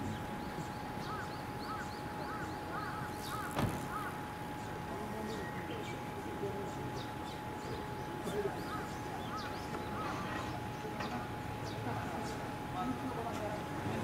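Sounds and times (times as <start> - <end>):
bird calling: 0.0 - 6.0, 7.0 - 12.4
sharp knock: 3.4 - 4.0.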